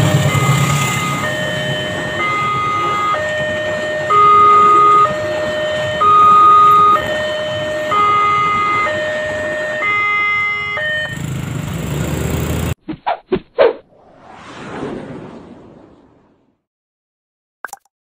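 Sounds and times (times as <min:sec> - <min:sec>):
level crossing two-tone alarm: 0:00.0 - 0:11.3
passing train: 0:00.0 - 0:12.8
road traffic rumble: 0:00.0 - 0:12.8.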